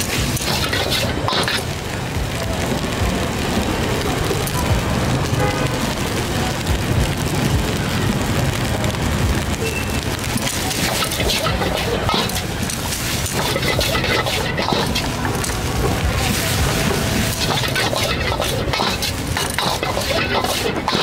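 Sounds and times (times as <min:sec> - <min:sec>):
dense market hiss: 0:00.0 - 0:21.0
background voices: 0:10.4 - 0:21.0.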